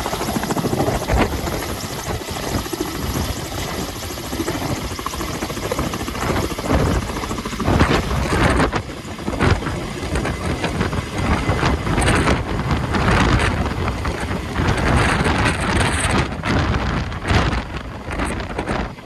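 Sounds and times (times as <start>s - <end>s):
helicopter rotors and engines: 0.0s - 19.0s
rotor downwash buffeting microphone: 5.8s - 19.0s.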